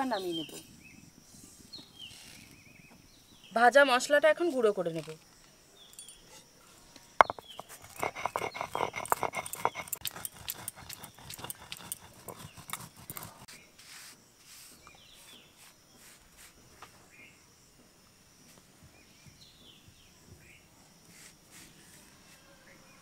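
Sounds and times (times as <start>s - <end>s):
stone pestle knocking and grinding: 7.2s - 13.5s.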